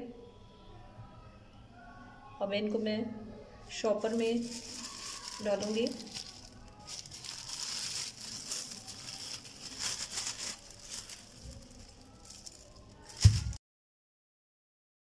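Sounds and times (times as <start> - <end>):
plastic bag rustling: 4.0 - 13.6.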